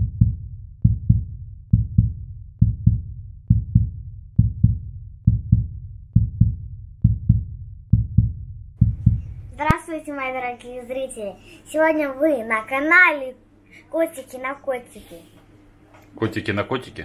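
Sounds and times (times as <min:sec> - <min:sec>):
heartbeat double thumps: 0:00.0 - 0:09.8.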